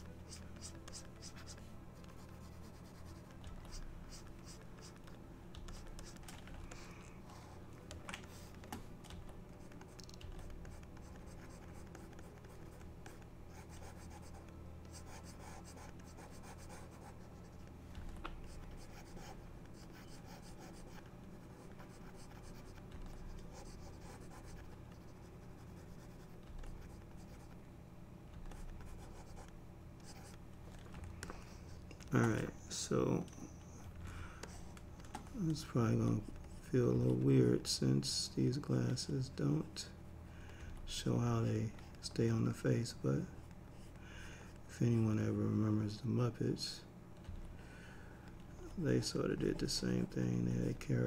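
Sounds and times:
stylus scratching on tablet: 0.0s - 27.6s, 28.4s - 30.5s, 31.1s - 40.0s
low steady hum: 0.0s - 51.0s.

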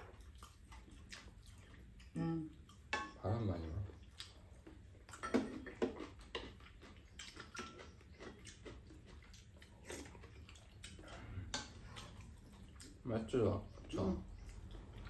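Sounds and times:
slurping and chewing: 0.0s - 2.9s, 3.8s - 15.0s
utensils clinking against bowls: 5.1s - 9.2s.

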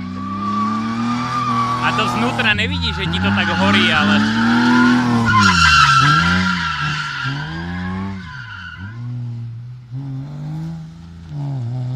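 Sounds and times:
car engine revving: 0.0s - 11.9s
tyres squealing: 0.3s - 9.0s.

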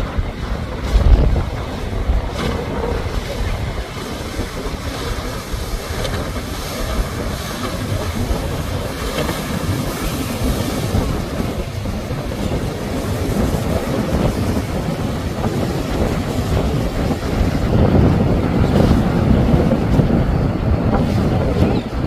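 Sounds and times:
hull spray: 0.0s - 22.0s
powerboat engines: 0.0s - 22.0s
wind buffeting microphone: 0.0s - 22.0s.

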